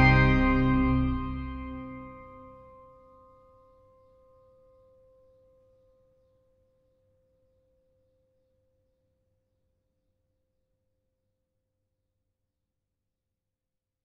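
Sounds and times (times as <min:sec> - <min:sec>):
organ chord: 0:00.0 - 0:02.6.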